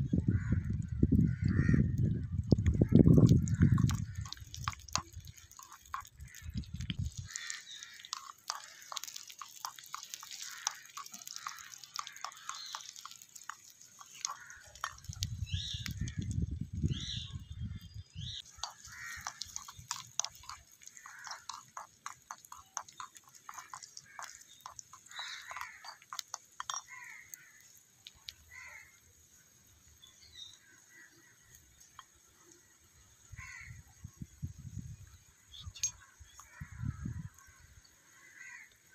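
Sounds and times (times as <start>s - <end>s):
crows cawing: 1.4s - 1.9s, 7.2s - 15.1s, 18.6s - 27.7s, 28.5s - 29.0s, 33.4s - 33.8s, 38.1s - 38.8s
onions sizzling in hot oil: 7.0s - 15.2s.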